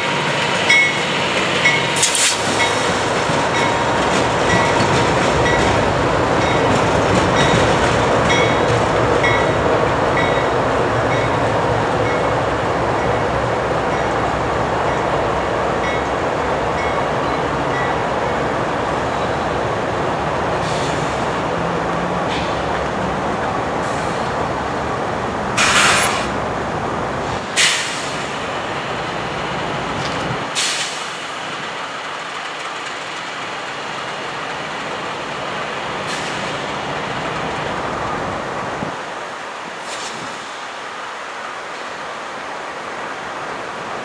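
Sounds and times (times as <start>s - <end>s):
sharp air hisses: 2.0s - 2.8s, 20.6s - 21.2s, 25.6s - 26.4s, 27.3s - 28.4s, 30.5s - 31.2s, 39.8s - 40.6s.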